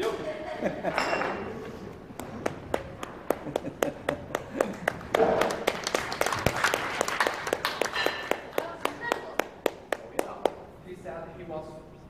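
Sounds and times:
hand clapping: 2.1 - 10.7.

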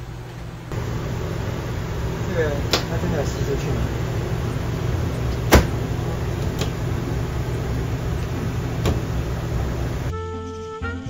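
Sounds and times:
steady low hum: 0.0 - 10.1
sharp clicks of stove and door: 2.6 - 3.0, 5.2 - 6.8, 7.7 - 9.2.

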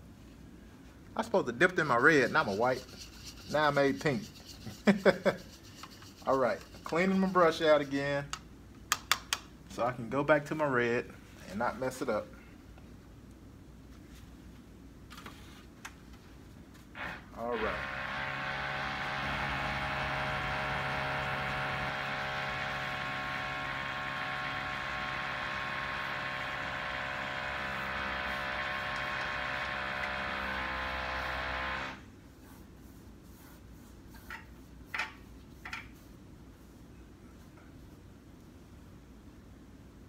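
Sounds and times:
machine droning: 17.0 - 32.1.

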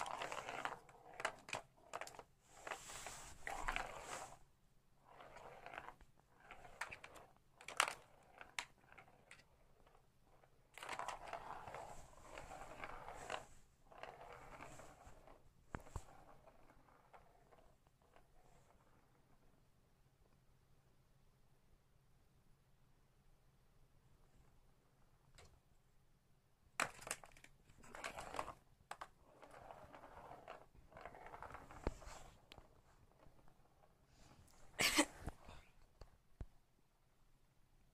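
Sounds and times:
ball rolling through plastic tube: 0.0 - 19.8, 26.8 - 36.5.

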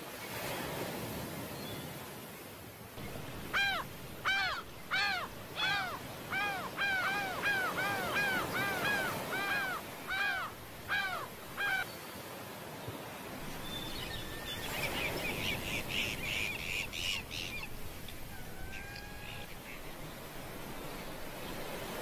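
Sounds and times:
surf and wind hiss: 0.0 - 22.0
bird calling: 3.0 - 11.9, 13.5 - 21.4.

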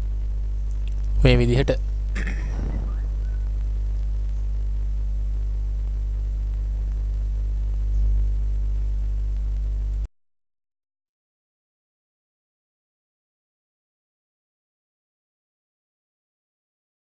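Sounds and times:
electrical mains hum: 0.0 - 10.1.

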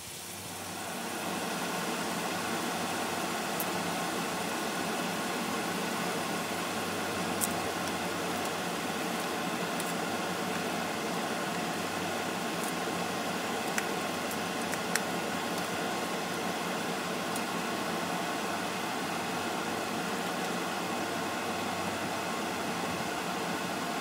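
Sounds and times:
shrimp sizzling in butter: 6.5 - 18.8.

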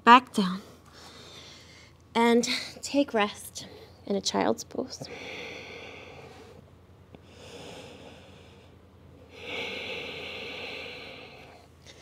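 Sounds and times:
woman breathing heavily: 0.8 - 2.7, 5.0 - 12.0.

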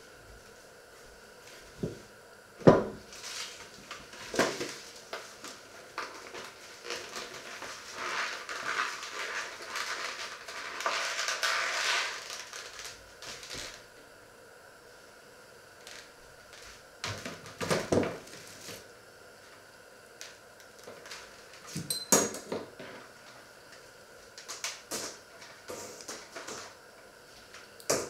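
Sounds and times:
rustling and scraping: 3.0 - 13.8, 15.9 - 19.6.

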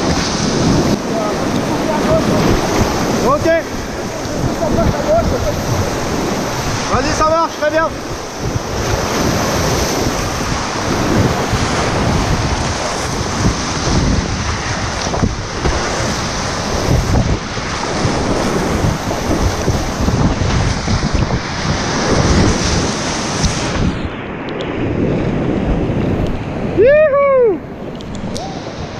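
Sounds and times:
river rushing and splashing: 0.0 - 28.9
wind buffeting microphone: 0.0 - 28.9
water thumping against boat: 8.4 - 23.9.

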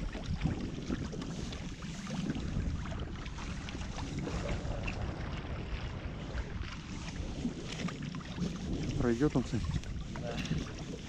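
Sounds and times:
water lapping against a boat: 0.0 - 11.0
wind rumbling on microphone: 0.0 - 11.0.

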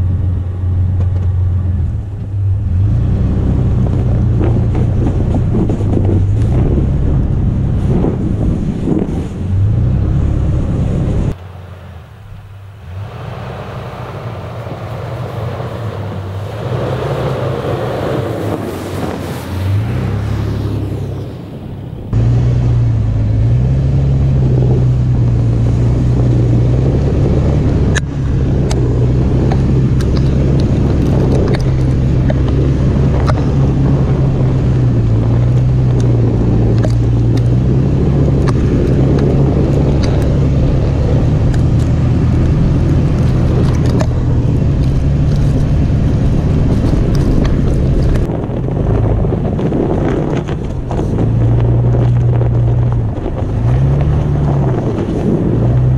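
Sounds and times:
car engine running at low revs: 0.0 - 55.9
tyres crunching through snow: 13.0 - 55.9.

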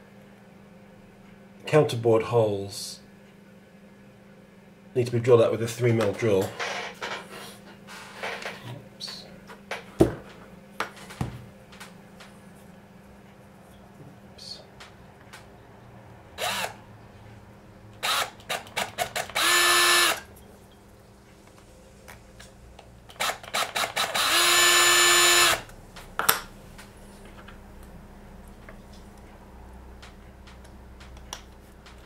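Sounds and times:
cordless drill drilling plastic: 16.4 - 16.8, 18.0 - 20.2, 23.2 - 25.6.

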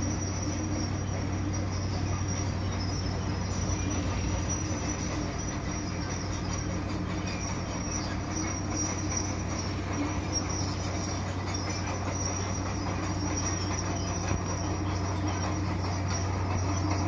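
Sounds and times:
diesel drone: 0.0 - 17.0
thin high whine: 0.0 - 17.0
track and drum rumble: 0.0 - 17.0.

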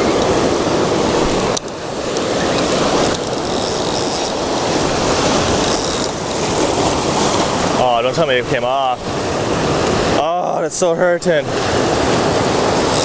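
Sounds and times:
fishing reel clicking: 1.6 - 4.7, 5.6 - 6.4.

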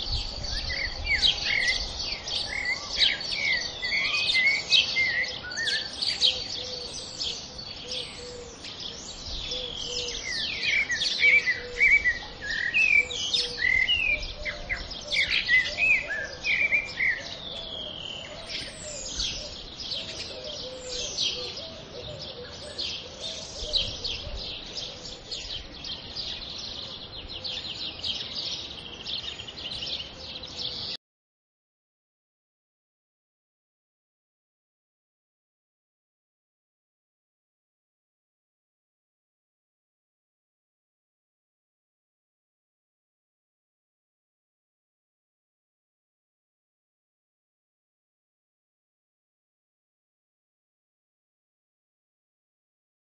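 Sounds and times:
small birds chirping: 0.0 - 31.0.

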